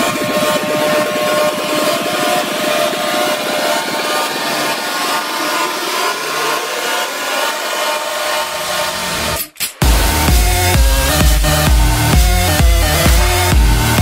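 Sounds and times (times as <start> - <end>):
electronic dance music build-up: 0.0 - 14.0
fast repeating pulses: 0.0 - 14.0
rising sweep: 0.0 - 14.0.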